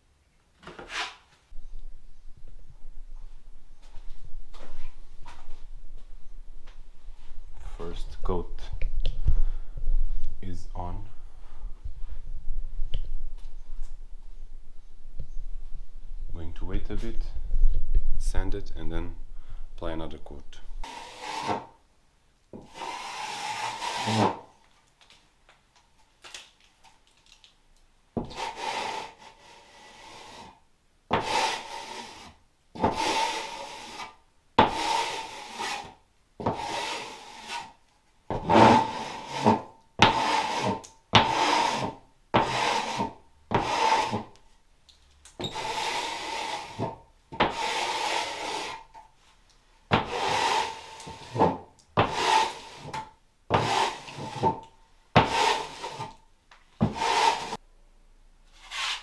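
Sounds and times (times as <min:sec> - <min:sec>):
hand sanding strokes: 0:20.8 - 0:21.6, 0:22.6 - 0:24.4, 0:28.3 - 0:30.6, 0:31.2 - 0:37.8, 0:38.4 - 0:44.3, 0:45.5 - 0:48.9, 0:50.0 - 0:54.6, 0:55.2 - 0:56.2, 0:56.8 - 0:57.6, 0:58.6 - 0:59.0.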